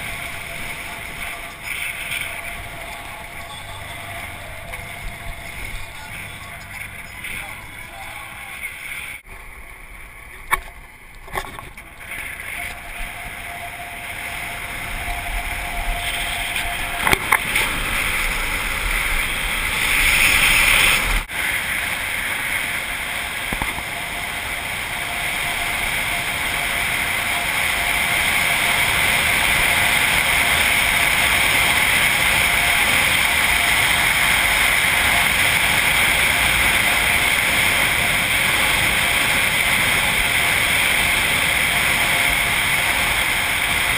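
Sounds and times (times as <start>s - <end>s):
wind rushing: 12.0s - 43.9s.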